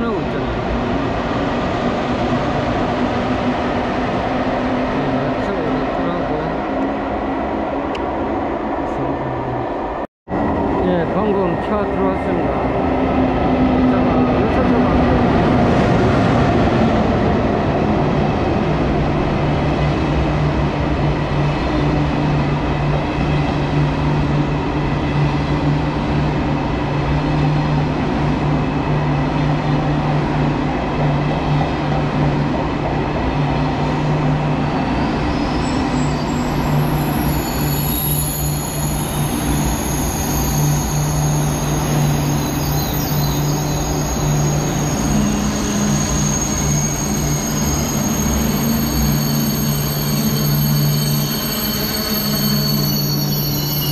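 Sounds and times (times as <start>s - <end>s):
train rumbling past: 0.0s - 53.9s
high brake squeal: 35.0s - 53.9s.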